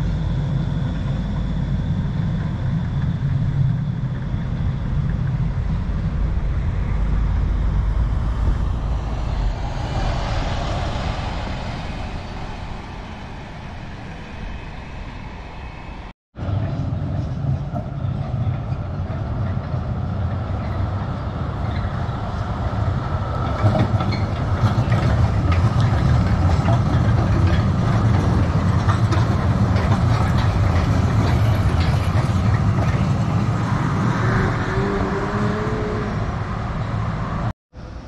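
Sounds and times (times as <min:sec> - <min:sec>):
faint whine: 0:00.0 - 0:33.1
tram rolling rumble: 0:00.0 - 0:38.0
wheels clicking on track: 0:16.4 - 0:35.1.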